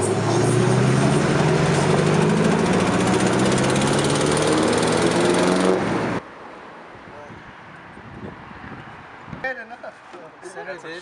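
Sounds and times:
car engine revving: 0.0s - 6.2s.

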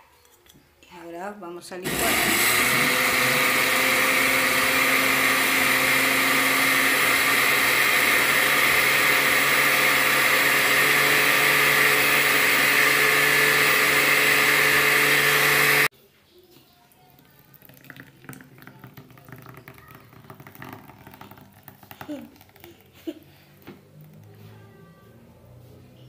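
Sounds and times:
blender running: 1.8s - 15.9s.

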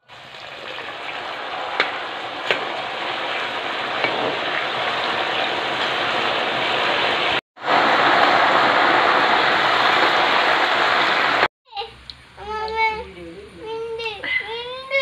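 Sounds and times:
oil sizzling: 0.0s - 11.5s.

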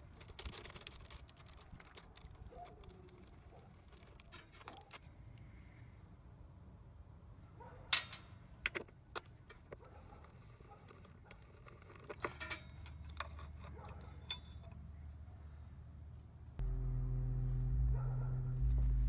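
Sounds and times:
metal tools clinking: 12.2s - 14.8s.

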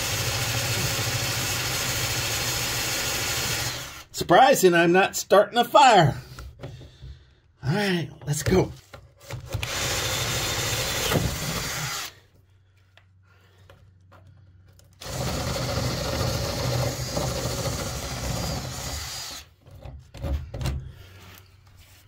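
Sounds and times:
power drill boring: 0.0s - 4.1s, 9.4s - 12.2s, 15.0s - 19.6s.

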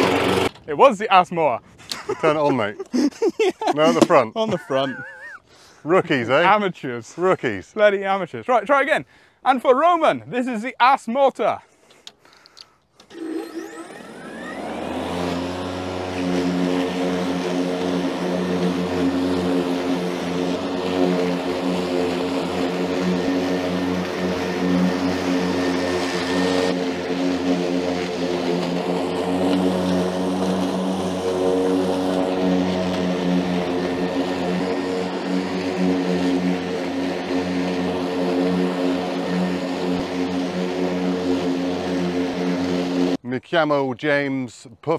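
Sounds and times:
lawn mower motor humming: 0.0s - 0.7s, 1.8s - 5.4s, 12.0s - 43.2s.

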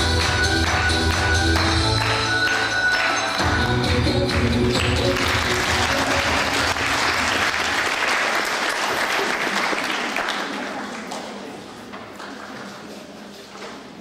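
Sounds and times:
music: 0.0s - 7.3s
audience applauding: 0.1s - 3.5s, 4.6s - 11.5s.

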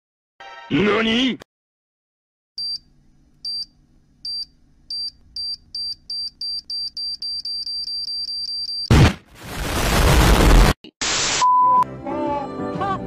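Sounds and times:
short high-pitched beeps: 4.3s - 8.9s.

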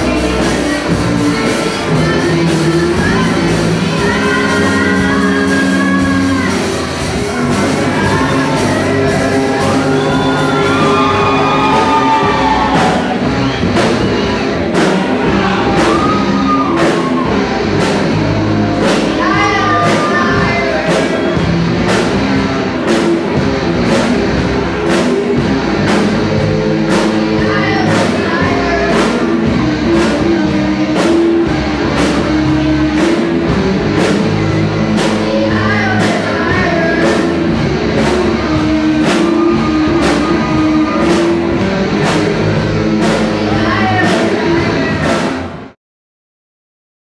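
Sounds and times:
person singing: 0.0s - 13.2s, 18.7s - 21.4s
rock band playing live: 0.0s - 45.8s.

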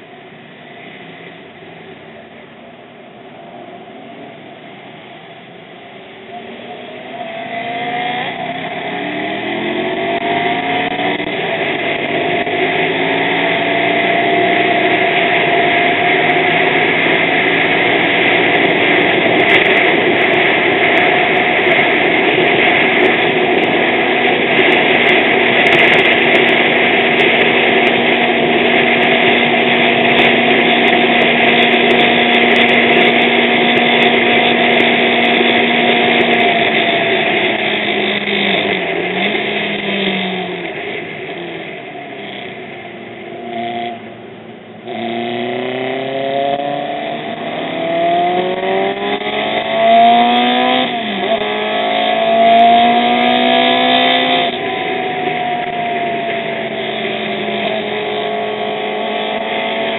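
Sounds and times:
wind noise: 0.0s - 44.1s
motorcycle engine accelerating: 3.4s - 59.9s.

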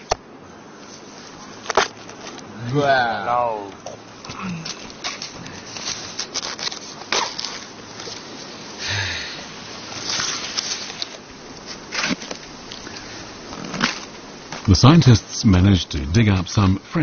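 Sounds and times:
rustling scrapes: 4.5s - 8.6s, 9.8s - 14.7s.

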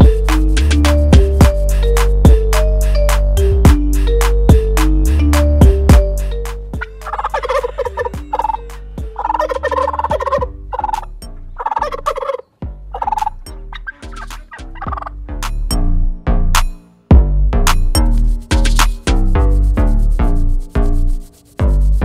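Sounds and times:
turkey gobbling: 6.7s - 15.1s.

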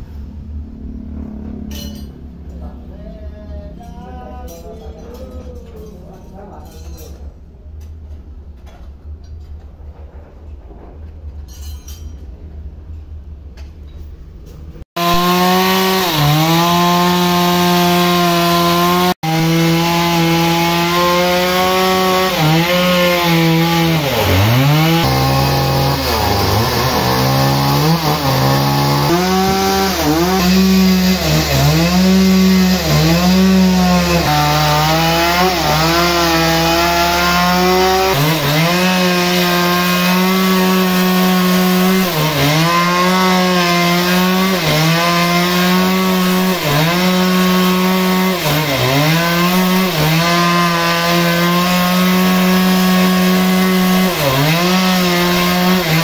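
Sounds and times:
chainsaw cutting log: 15.0s - 56.0s.

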